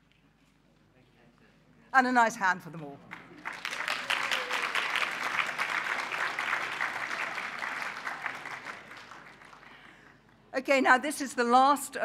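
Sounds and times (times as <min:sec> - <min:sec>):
audience applauding: 0:03.1 - 0:10.2.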